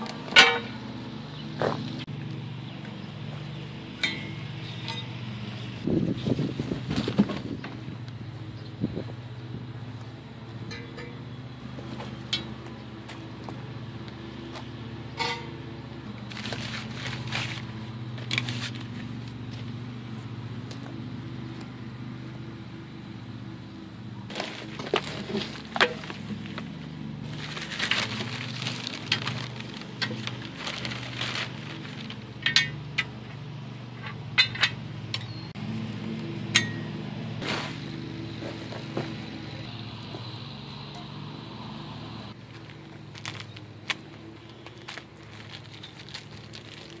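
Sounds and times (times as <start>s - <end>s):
steady low hum: 0.0s - 47.0s
steel parts clinking: 4.0s - 5.2s, 10.7s - 11.3s, 15.2s - 15.6s, 27.4s - 33.2s, 36.5s - 36.9s
bubble-wrap and cardboard crinkling: 16.2s - 19.0s, 24.3s - 32.3s, 42.4s - 47.0s.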